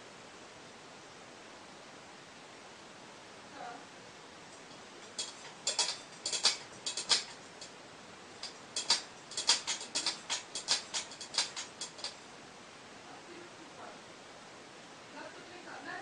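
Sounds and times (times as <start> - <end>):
cat eating clicks: 4.6 - 7.7, 8.4 - 12.2.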